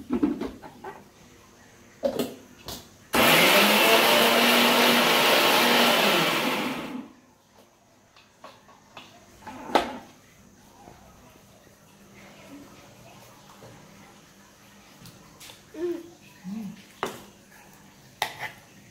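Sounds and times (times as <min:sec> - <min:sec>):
mixer grinder motor running: 0:03.2 - 0:07.1.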